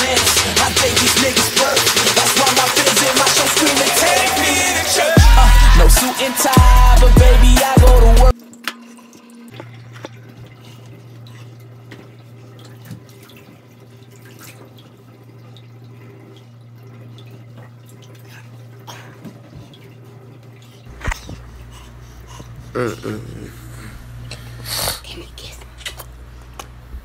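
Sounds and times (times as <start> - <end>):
faucet running water into tub: 0.0 - 21.1
small knocks and splashes: 8.4 - 21.6
steady low hum: 13.9 - 27.0.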